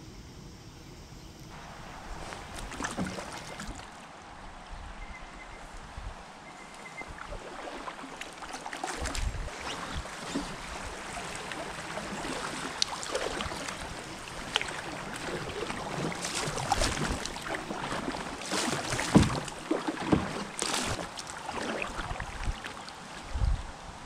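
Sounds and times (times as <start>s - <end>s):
paddle splashing in water: 1.5s - 4.6s, 6.4s - 23.5s
water trickling along hull: 1.5s - 24.0s.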